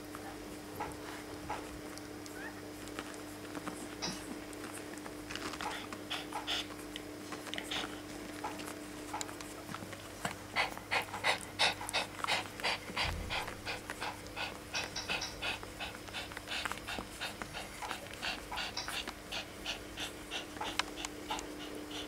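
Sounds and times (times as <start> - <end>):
dog panting quickly: 5.6 - 22.0.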